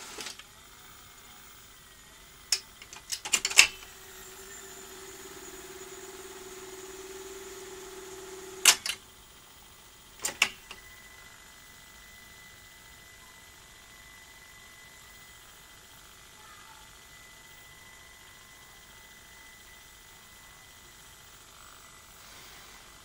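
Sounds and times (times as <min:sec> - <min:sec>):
tape mechanism humming: 0:00.0 - 0:23.0
video recorder clicks and clunks: 0:02.5 - 0:03.9, 0:08.6 - 0:09.0, 0:10.2 - 0:10.8.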